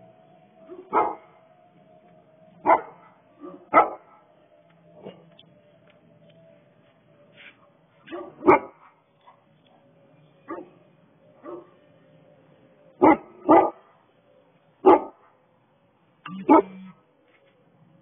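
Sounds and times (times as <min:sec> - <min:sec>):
dog barking: 0:00.7 - 0:01.3, 0:02.6 - 0:04.3, 0:08.0 - 0:09.9, 0:10.5 - 0:10.8, 0:11.4 - 0:11.8, 0:13.0 - 0:14.0, 0:14.8 - 0:15.4, 0:16.4 - 0:16.9.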